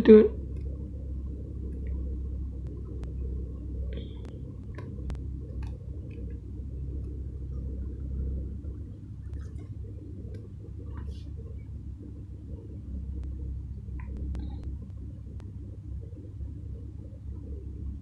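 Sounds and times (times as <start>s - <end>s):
low rumbling hum: 0.0s - 18.0s
faint clicks: 2.6s - 3.2s, 3.9s - 7.6s, 12.6s - 17.5s.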